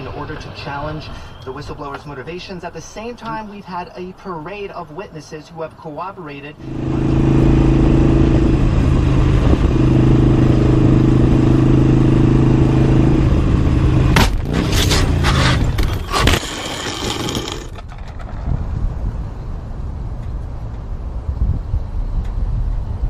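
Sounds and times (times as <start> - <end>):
motorcycle engine running: 6.6 - 16.0
motorcycle scraping on pavement: 13.8 - 19.2
motorcycle crash impacts: 14.2 - 18.6.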